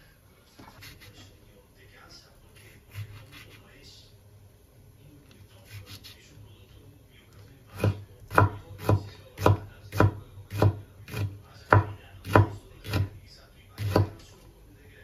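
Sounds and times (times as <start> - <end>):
knife chopping on cutting board: 7.7 - 13.2, 13.8 - 14.3.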